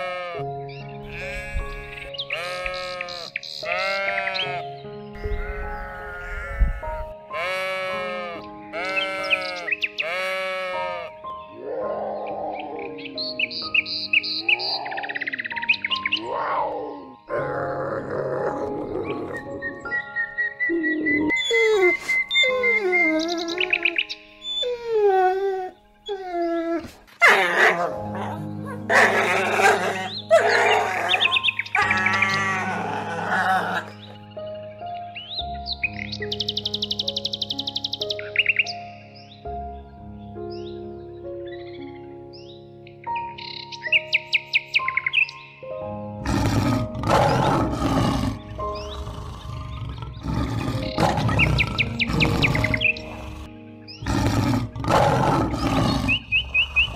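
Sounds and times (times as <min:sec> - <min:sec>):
sheep bleating: 0:00.0 - 0:00.4, 0:01.0 - 0:04.7, 0:05.3 - 0:11.2
background music: 0:00.0 - 0:56.9
small dog whining: 0:21.2 - 0:27.8.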